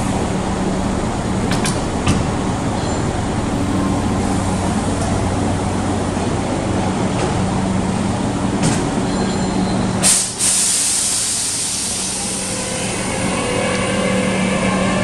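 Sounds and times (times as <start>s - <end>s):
electric train humming: 0.0s - 15.0s
train inverter whine rising: 9.1s - 15.0s
air brake hiss: 10.0s - 13.1s.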